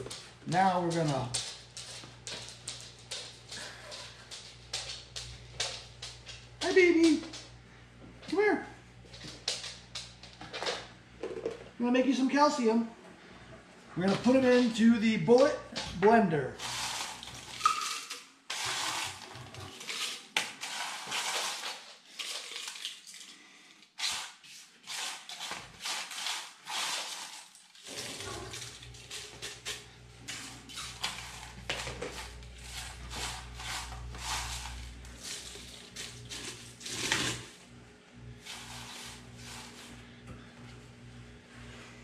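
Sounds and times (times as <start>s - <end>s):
low steady hum: 28.0s - 42.0s.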